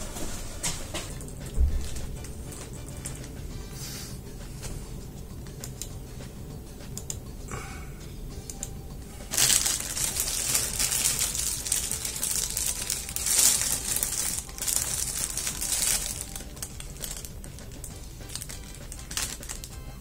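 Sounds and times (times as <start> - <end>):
plastic bread wrapper crinkling: 9.3 - 19.8.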